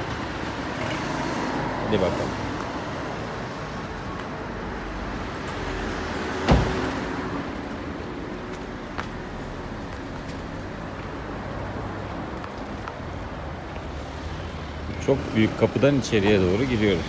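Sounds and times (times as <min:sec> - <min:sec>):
street traffic: 0:00.0 - 0:17.0
truck door slamming: 0:06.4 - 0:07.0.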